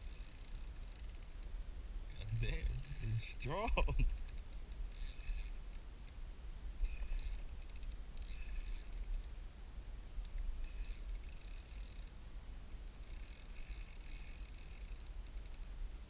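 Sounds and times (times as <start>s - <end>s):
fishing reel cranking: 0.0s - 1.4s, 2.2s - 5.6s, 6.8s - 9.3s, 10.6s - 16.0s.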